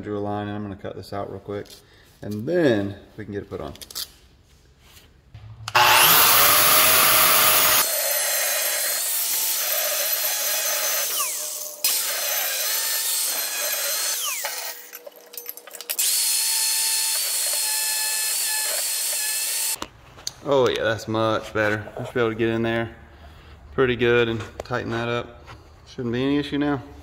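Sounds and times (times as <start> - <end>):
angle grinder cutting steel: 5.7 - 15.1, 15.9 - 19.8.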